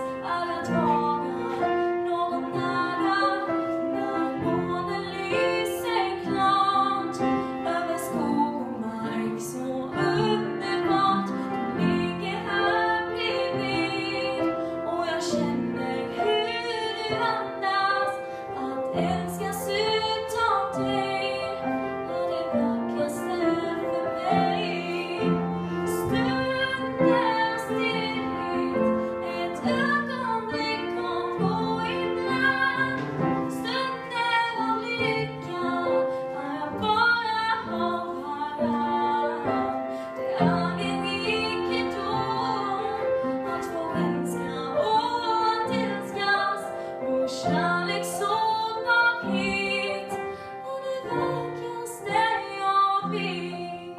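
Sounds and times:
upright piano: 0.0s - 53.9s
woman singing slow song: 0.0s - 53.9s.

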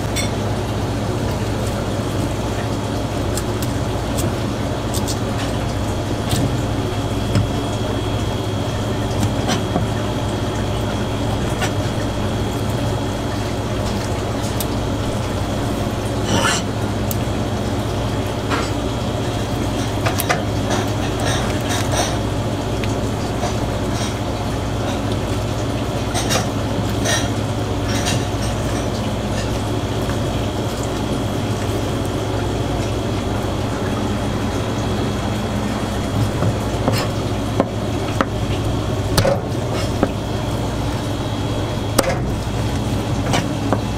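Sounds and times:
mechanical hum with high whine: 0.0s - 43.9s.

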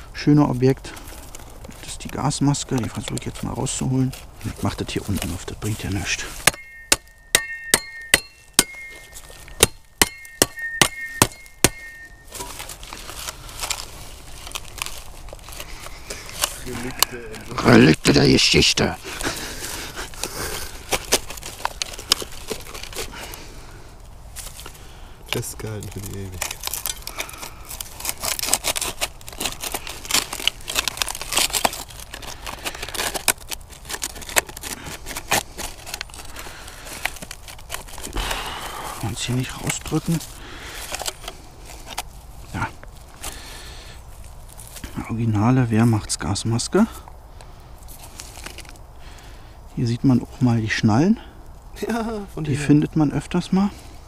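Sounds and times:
canister scraping and rustling: 0.8s - 6.7s, 11.4s - 23.5s, 47.9s - 48.8s
knife scraping rusted metal: 6.3s - 13.0s.

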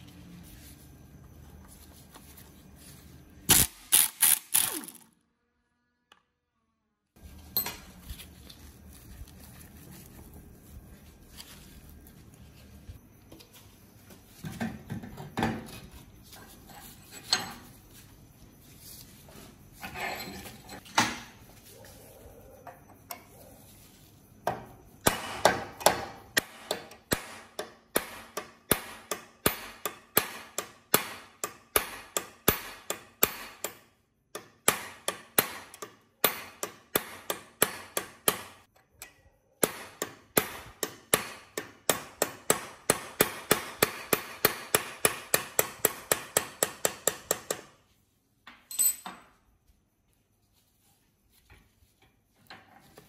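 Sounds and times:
hammer striking steel punch: 39.6s - 47.2s.

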